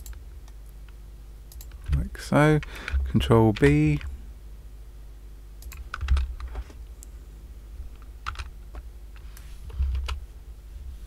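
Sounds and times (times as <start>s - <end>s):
keyboard and mouse clicking: 0.0s - 2.0s, 2.6s - 4.1s, 5.6s - 6.5s, 8.0s - 8.8s.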